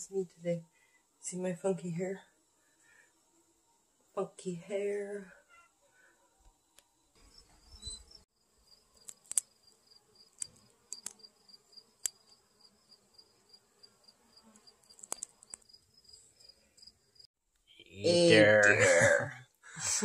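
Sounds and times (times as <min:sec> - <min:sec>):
high-pitched pulsing chirp: 0:07.6 - 0:08.2
bees buzzing: 0:08.7 - 0:15.8
sharp clicks: 0:09.0 - 0:09.5, 0:10.4 - 0:11.2, 0:14.9 - 0:15.7.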